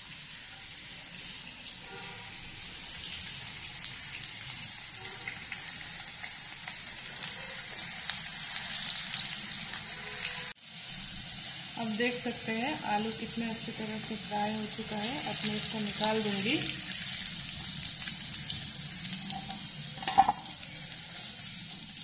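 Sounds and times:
potatoes frying in oil: 0.0s - 22.0s
oil crackling and popping: 2.8s - 10.5s, 15.1s - 22.0s.

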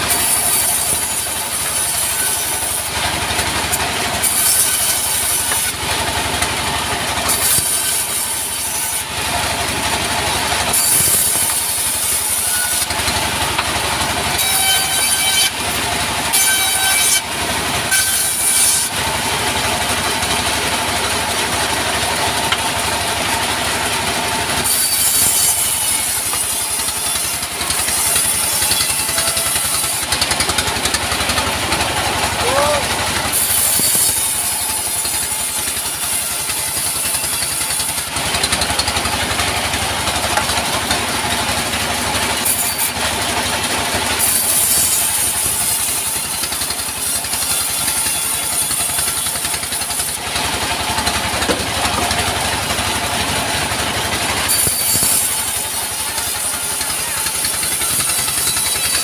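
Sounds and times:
diesel engine rumble: 0.0s - 14.4s, 18.9s - 35.2s, 38.0s - 44.2s, 45.4s - 59.0s
saw blade rasping through wood: 0.0s - 59.0s.

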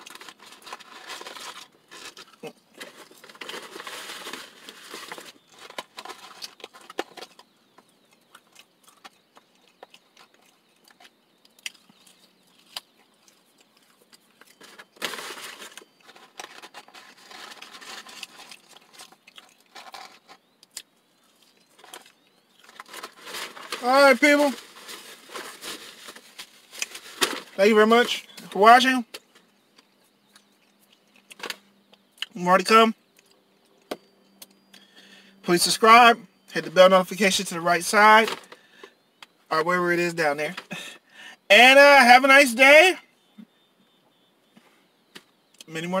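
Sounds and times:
cardboard carton crinkling: 0.0s - 7.4s, 14.4s - 20.4s, 21.4s - 28.3s
chewing: 7.8s - 15.0s, 18.1s - 22.7s.

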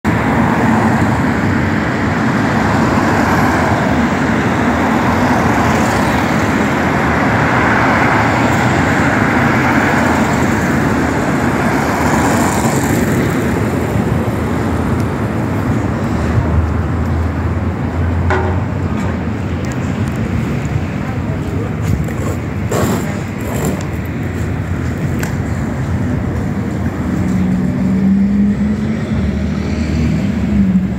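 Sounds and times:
passing cars rushing: 0.1s - 30.9s.

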